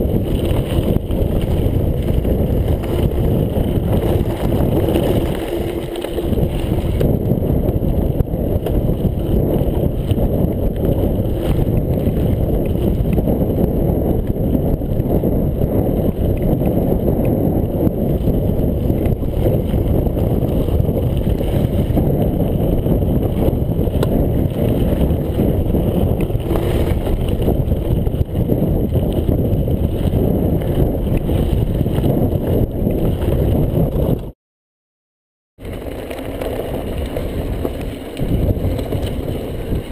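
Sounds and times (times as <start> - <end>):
bike clicks and rattles: 0.0 - 34.3, 35.6 - 39.9
bike tyres on gravel: 0.0 - 34.3, 35.6 - 39.9
wind buffeting microphone: 0.0 - 34.4, 35.6 - 39.9.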